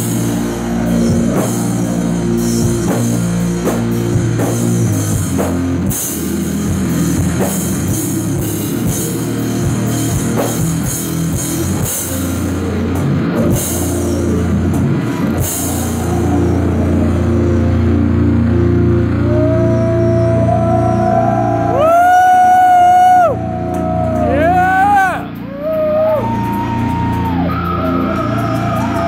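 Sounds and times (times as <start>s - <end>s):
live rock band playing: 0.0s - 20.9s.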